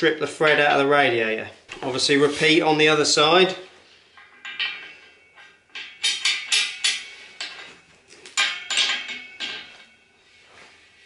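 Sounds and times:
spanner clinking on metal: 4.1 - 10.1.

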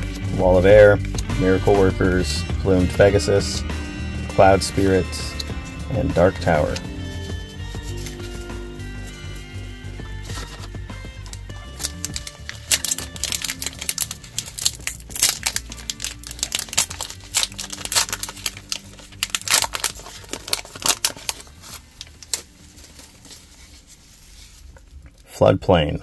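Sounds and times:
background music: 0.0 - 24.7
wrapper crinkling and tearing: 6.3 - 9.4, 10.2 - 25.2.

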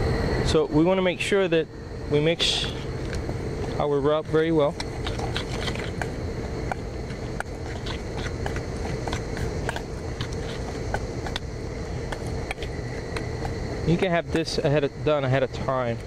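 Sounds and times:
low background rumble: 0.0 - 16.0
metal spoon scraping bowl: 4.8 - 11.4.

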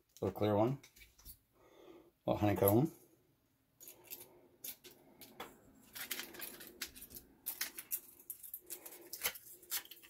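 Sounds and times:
plastic packaging crinkling: 5.8 - 10.0.

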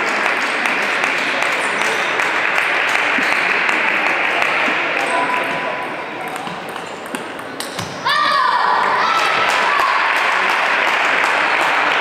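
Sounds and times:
spectators clapping and cheering: 0.0 - 5.8, 8.7 - 12.0.

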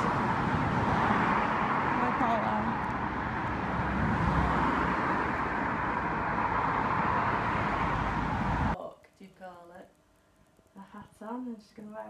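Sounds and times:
road traffic noise: 0.0 - 8.8.

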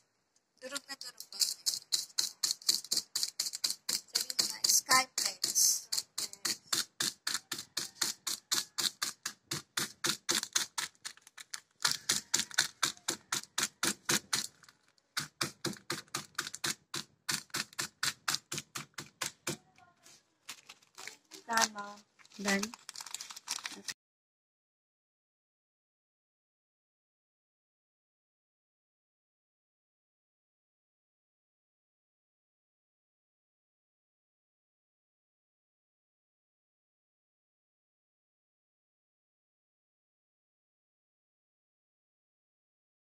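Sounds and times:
plastic bottle tapping on bread: 2.2 - 14.6, 15.2 - 19.6.

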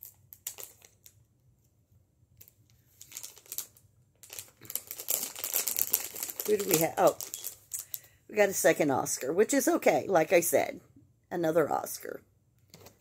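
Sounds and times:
foil wrapper crinkling: 0.0 - 1.2, 3.0 - 8.1.

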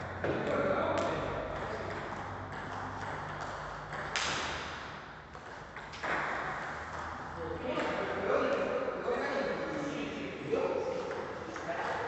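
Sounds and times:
ping pong ball clicking off paddles: 0.0 - 8.7
sharp echoing paddle hits: 0.1 - 5.2.

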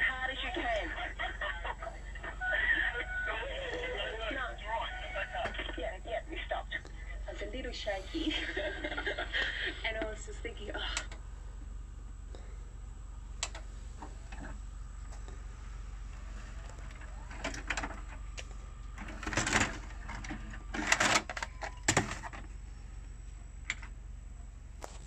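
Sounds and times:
cassette ejecting clunks: 19.0 - 22.4.

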